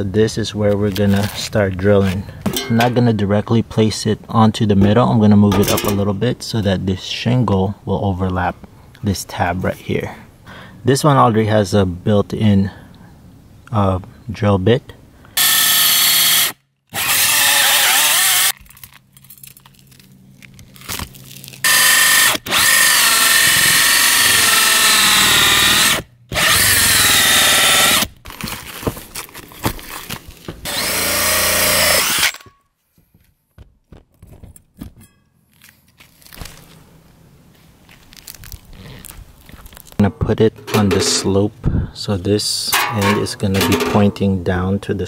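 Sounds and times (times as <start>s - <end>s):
drill with hole saw cutting roof: 15.4s - 18.5s, 21.6s - 28.1s, 30.6s - 32.5s
scraping: 38.0s - 41.6s.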